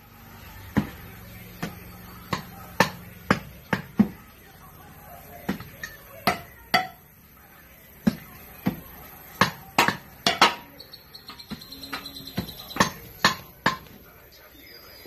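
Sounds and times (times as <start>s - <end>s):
digging tools striking soil and stones: 8.0s - 14.0s.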